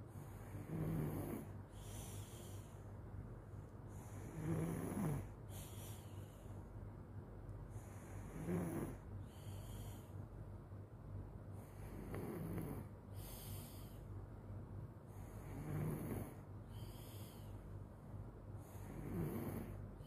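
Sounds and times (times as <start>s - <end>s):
child snoring: 0.2s - 2.6s, 4.0s - 6.2s, 7.8s - 9.9s, 11.6s - 13.9s, 15.2s - 17.4s, 18.6s - 20.0s
soft hissing breath out: 1.4s - 3.0s, 5.2s - 6.8s, 9.2s - 10.2s, 13.1s - 14.1s, 16.6s - 17.7s.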